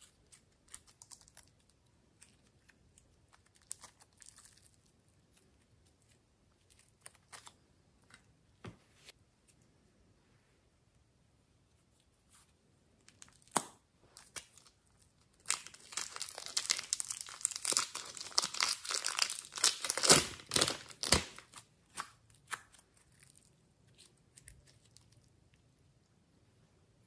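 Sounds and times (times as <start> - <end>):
plastic bag crinkling and tearing: 14.2 - 21.7.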